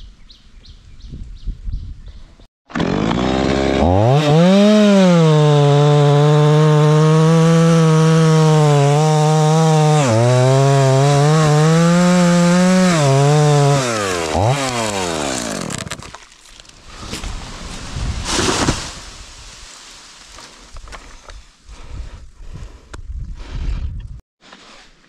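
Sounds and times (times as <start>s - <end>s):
chainsaw cutting tree trunk: 2.7s - 16.4s.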